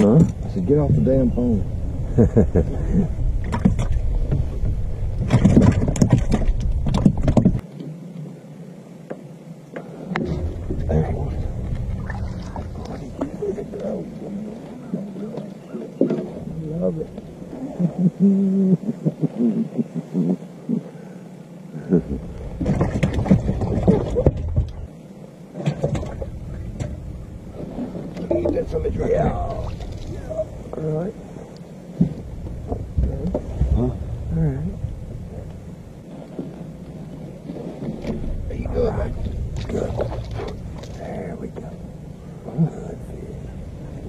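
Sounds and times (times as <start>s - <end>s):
low rumble: 0.0s - 7.6s, 10.0s - 19.1s, 25.8s - 44.0s
knocks and bumps in boat: 3.4s - 7.6s, 10.1s - 14.0s, 22.5s - 24.9s, 25.5s - 30.1s, 31.9s - 34.1s, 37.4s - 41.7s
low voices: 10.0s - 20.8s, 38.4s - 44.0s.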